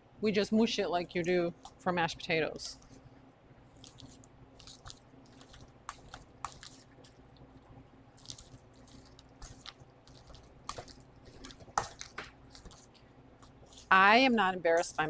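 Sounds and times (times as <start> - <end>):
fork mashing food: 3.8 - 7.6, 8.2 - 14.0.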